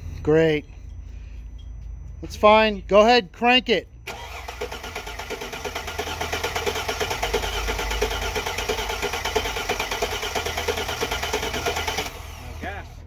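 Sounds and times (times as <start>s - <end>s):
engine cranking without starting: 4.0s - 12.6s.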